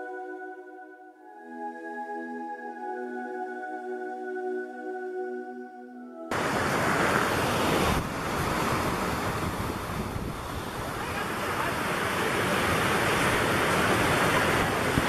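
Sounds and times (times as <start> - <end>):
soft background music: 0.0 - 6.3
creek rushing over rocks: 6.3 - 15.0.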